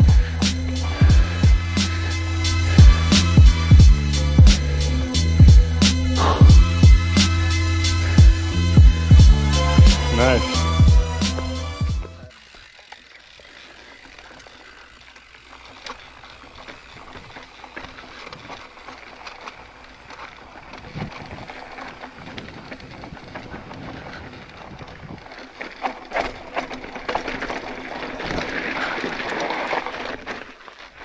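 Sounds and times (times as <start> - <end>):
bike clicking and rattling: 0.0 - 31.0
bike tyres rolling over rock and gravel: 6.7 - 31.0.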